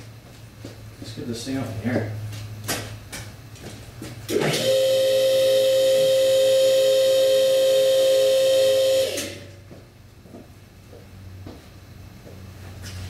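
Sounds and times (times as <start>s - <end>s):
hydraulic pump whining: 4.3s - 9.6s.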